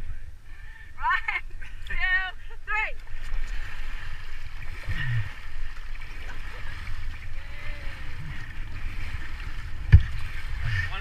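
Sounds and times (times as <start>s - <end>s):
river water rushing: 3.1s - 11.0s.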